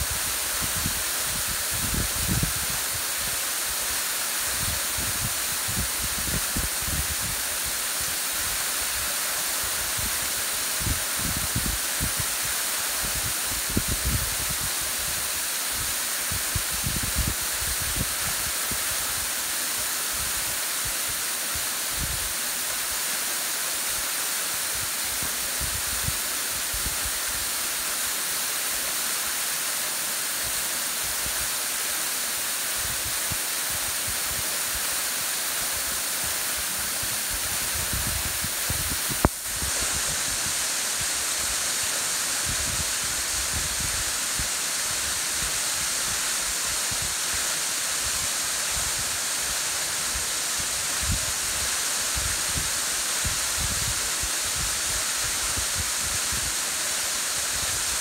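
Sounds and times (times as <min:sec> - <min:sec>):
waterfall splashing: 0:00.0 - 0:58.0
wind buffeting microphone: 0:37.4 - 0:40.2.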